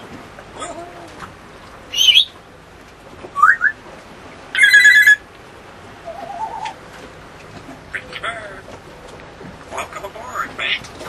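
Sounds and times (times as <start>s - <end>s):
parrot whistling: 1.9s - 2.4s, 3.4s - 3.8s, 4.5s - 5.2s, 6.0s - 6.8s.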